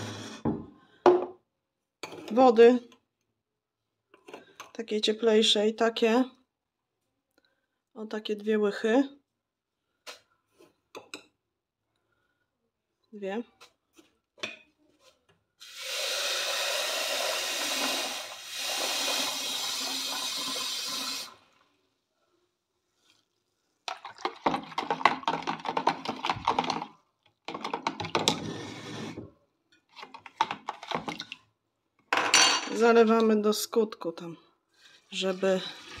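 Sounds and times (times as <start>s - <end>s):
tap water running into jug: 15.6s - 21.6s, 23.9s - 26.9s, 35.0s - 36.0s.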